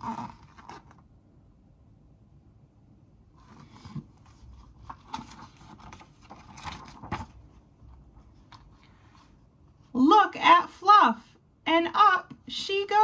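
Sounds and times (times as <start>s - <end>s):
book pages rustling: 3.4s - 9.9s.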